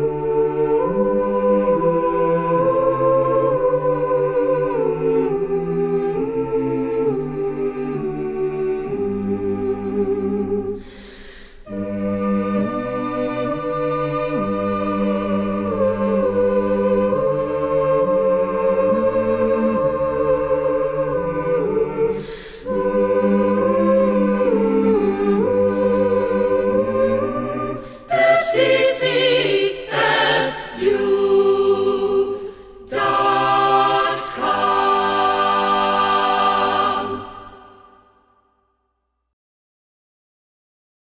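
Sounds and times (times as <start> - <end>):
choir singing held chords: 0.0 - 38.4.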